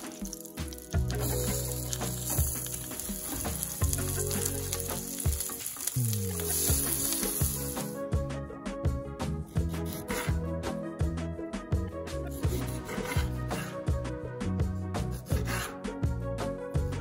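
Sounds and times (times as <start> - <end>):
food sizzling in frying pan: 0.0 - 8.0
background music: 0.0 - 17.0.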